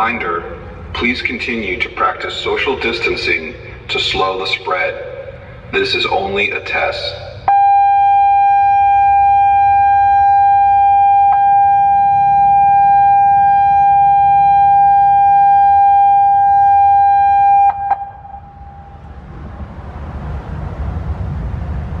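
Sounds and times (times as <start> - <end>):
hiss and rumble: 0.0 - 11.5, 17.8 - 22.0
loud steady alert tone: 7.1 - 19.1.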